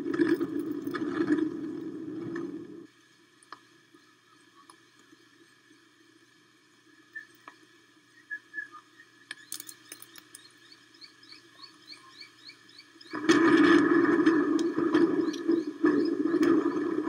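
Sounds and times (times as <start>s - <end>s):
storm wind and rain: 0.0s - 2.9s, 13.1s - 17.0s
small bird chirping: 8.3s - 13.2s.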